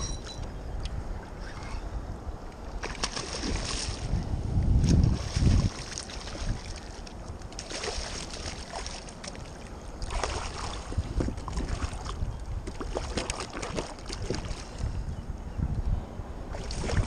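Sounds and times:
wind rumble on microphone: 0.0s - 17.0s
fish splashing in water: 2.8s - 4.1s, 7.6s - 14.7s, 16.6s - 17.0s.

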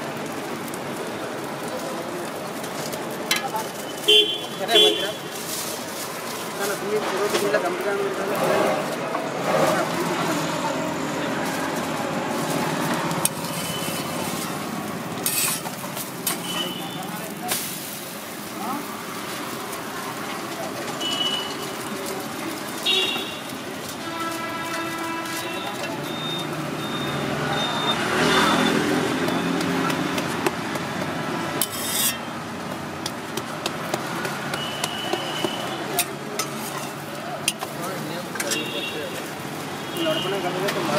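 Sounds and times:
food sizzling on a griddle: 0.0s - 40.9s
street noise: 0.0s - 40.9s
traffic noise: 0.0s - 40.9s
scraping hiss on griddle: 11.7s - 22.4s, 31.4s - 33.1s
metal utensils clinking: 11.8s - 16.8s, 31.5s - 32.3s, 35.9s - 38.8s.

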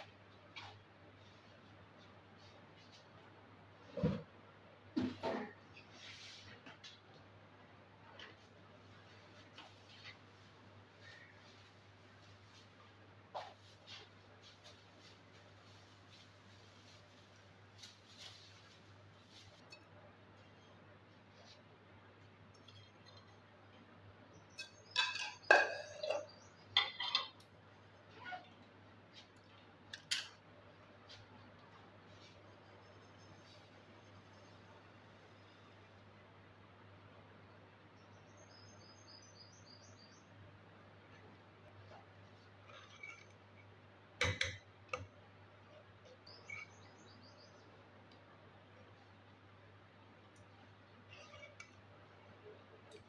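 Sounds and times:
metal utensils and dishes clinking: 24.6s - 27.5s
faint bird chirps: 38.0s - 40.4s, 45.7s - 47.8s.

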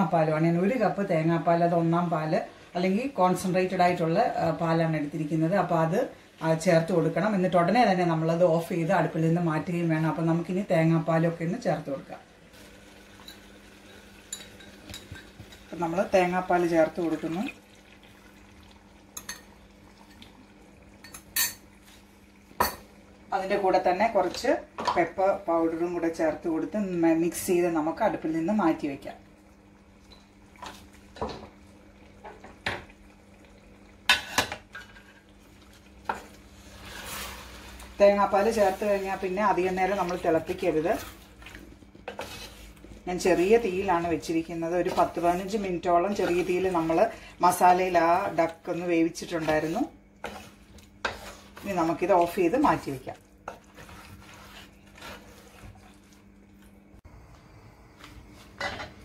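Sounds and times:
wooden spatula scraping metal pot: 36.0s - 56.2s.

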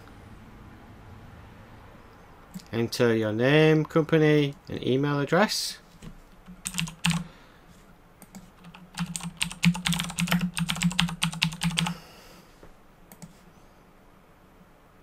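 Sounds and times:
computer keyboard typing: 6.4s - 7.3s, 8.2s - 12.0s.

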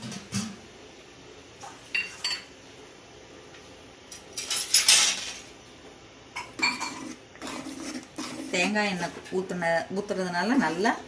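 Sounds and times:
spoon clanking and scraping in pot: 6.4s - 9.4s.

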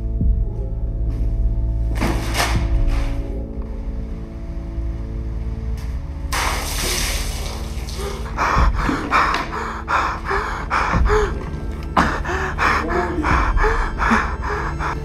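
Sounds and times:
man gasping and panting: 8.0s - 15.0s
man's strained cries: 10.1s - 15.0s.

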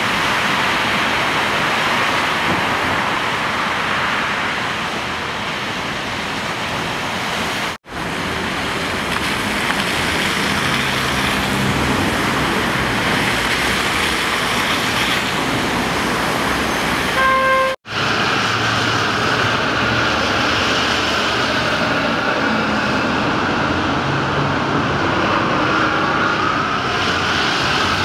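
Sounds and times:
tyres hissing through water: 6.8s - 28.0s.

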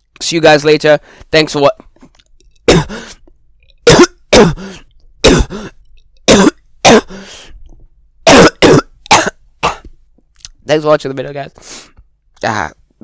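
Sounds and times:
person coughing: 2.7s - 3.1s, 3.8s - 7.2s, 8.3s - 9.9s.

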